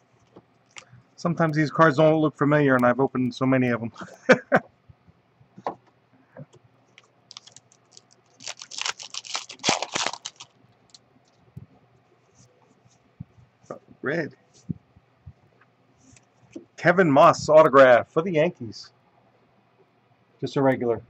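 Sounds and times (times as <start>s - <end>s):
plastic wrapper crinkling and tearing: 7.0s - 11.0s.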